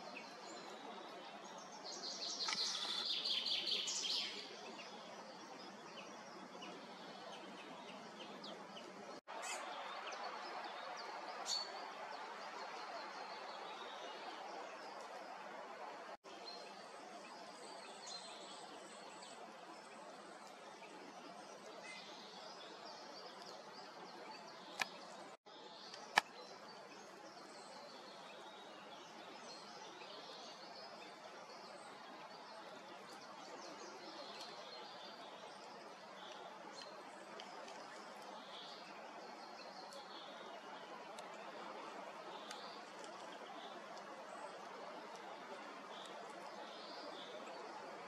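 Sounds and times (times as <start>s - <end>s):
songbirds chirping: 0.0s - 48.0s.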